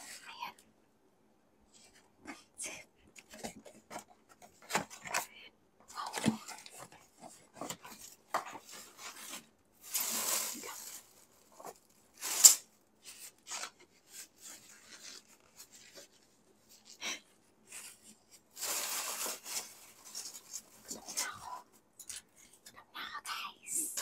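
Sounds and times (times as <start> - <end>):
paper bag rustling: 7.4 - 13.7, 18.5 - 21.1.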